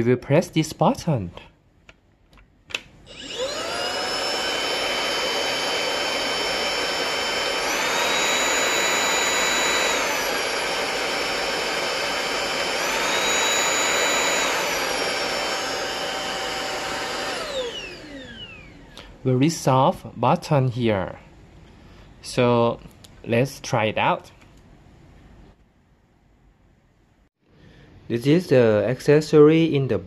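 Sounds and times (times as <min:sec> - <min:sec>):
cordless vacuum motor whining: 0:03.0 - 0:19.1.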